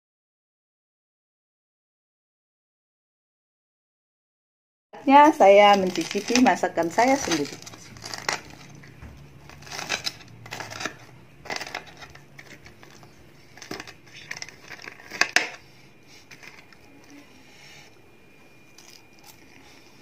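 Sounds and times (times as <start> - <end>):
crunching fried crust: 5.0 - 17.3, 18.7 - 20.0.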